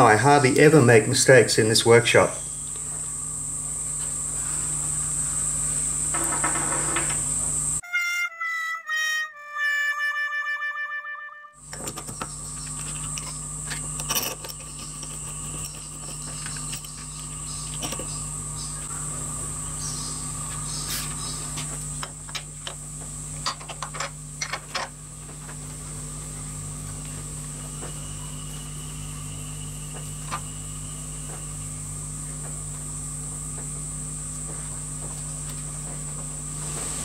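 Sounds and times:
steady workshop hum: 0.0 - 7.8, 11.6 - 37.0
small metal parts clicking: 11.7 - 18.1.

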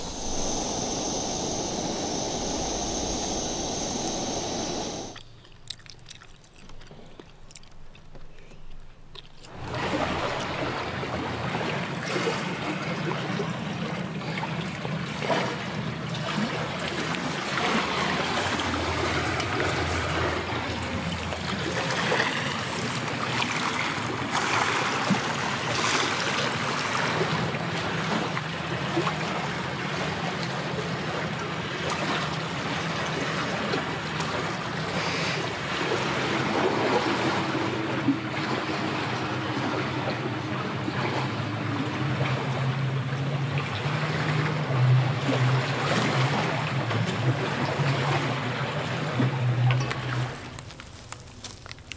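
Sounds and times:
steady low hum: 0.0 - 5.4
small waves washing on rocks: 49.9 - 51.9.

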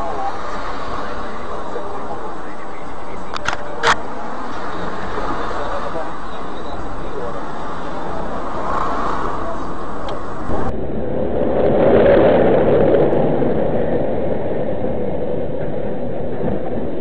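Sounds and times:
car road and engine noise: 0.0 - 11.0.

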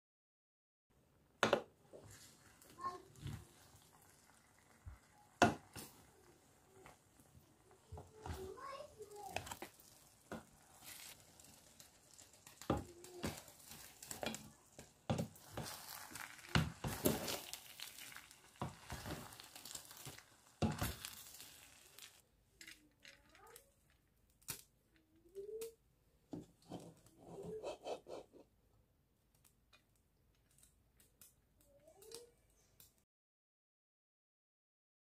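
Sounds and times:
aluminium foil crinkling: 8.4 - 24.6
spoon scraping in metal pot: 26.6 - 28.5.

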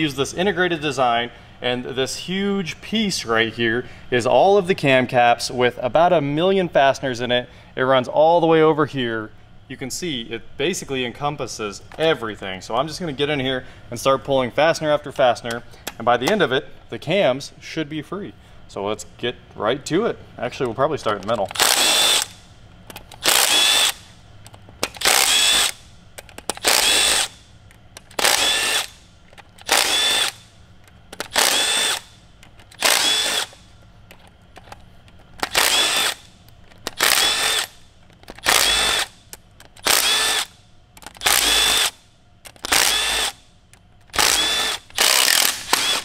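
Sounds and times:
cordless drill whining spurts: 21.6 - 22.4, 23.2 - 24.0, 25.0 - 25.8, 26.6 - 27.4, 28.2 - 29.0, 29.6 - 30.4, 31.3 - 32.1, 32.8 - 33.6, 35.5 - 36.3, 37.0 - 37.8, 38.4 - 39.1, 39.8 - 40.5, 41.2 - 42.0, 42.6 - 43.4, 44.1 - 46.0.

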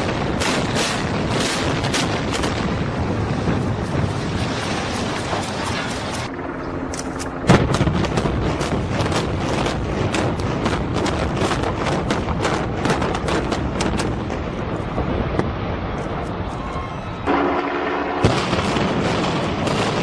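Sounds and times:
low rumble of building collapsing: 7.5 - 17.3.

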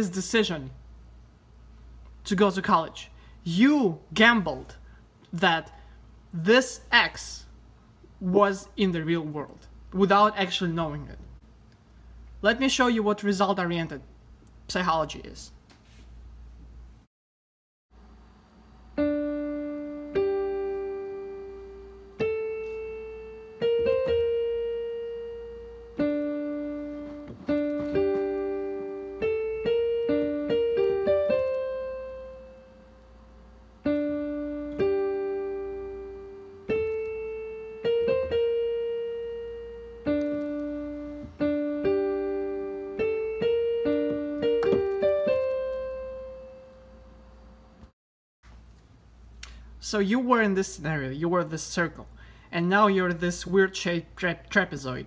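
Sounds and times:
slow piano melody: 18.9 - 47.9.

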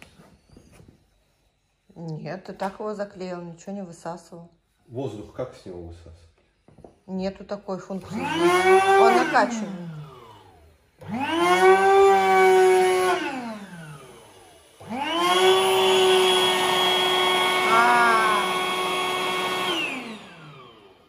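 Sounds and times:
electric air pump whining: 7.8 - 21.0.

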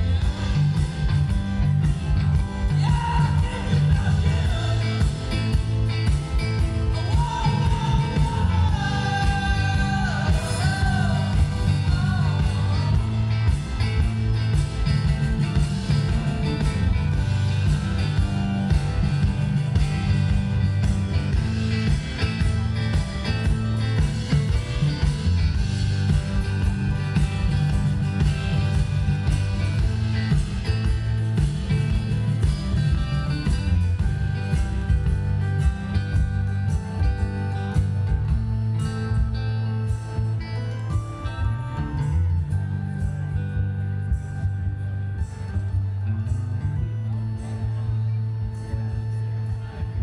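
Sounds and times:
rock band playing live: 0.0 - 50.0
person singing: 2.6 - 5.6, 6.9 - 13.6, 40.8 - 43.1.

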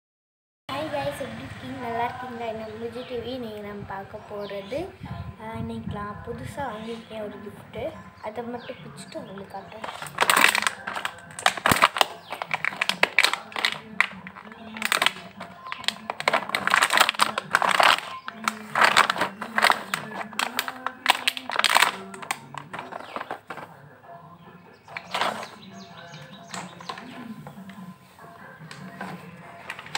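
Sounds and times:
gift wrapping crinkling and rustling: 9.7 - 23.8, 24.9 - 25.7, 26.3 - 29.9.

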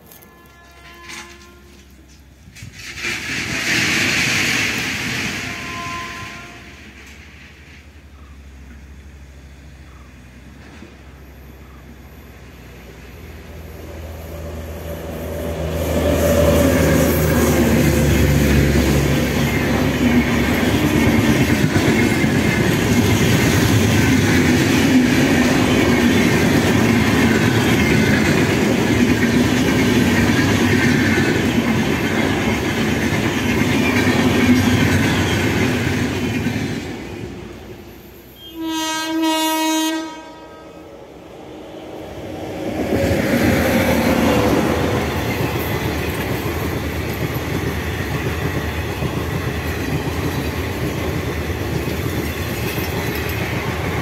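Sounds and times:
wheels clacking over rail joints: 0.0 - 8.9, 15.5 - 37.8, 42.5 - 54.0
train rushing past: 0.0 - 54.0.

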